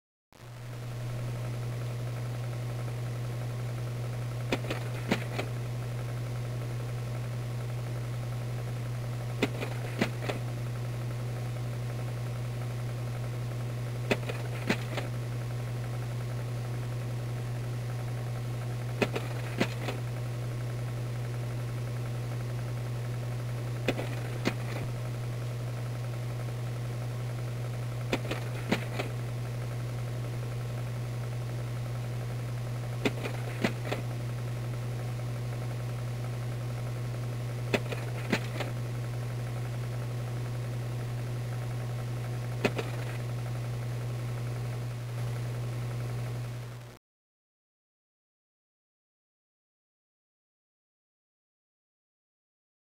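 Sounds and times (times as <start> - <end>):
projector fan motor hum: 0.4 - 47.0
slide projector mechanical clicks: 4.5 - 5.5, 9.4 - 10.5, 14.1 - 15.1, 19.0 - 20.0, 23.9 - 24.9, 28.1 - 29.2, 33.0 - 34.1, 37.7 - 38.8, 42.6 - 43.3.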